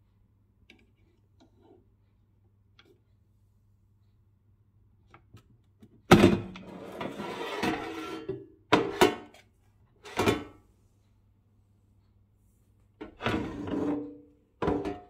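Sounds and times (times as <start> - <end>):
basket scraping slide: 6.7 - 8.3.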